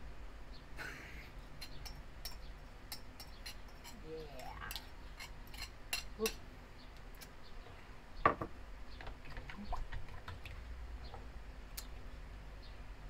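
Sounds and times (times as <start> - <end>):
metal spoon scraping a ceramic bowl: 1.6 - 4.0, 4.7 - 6.4.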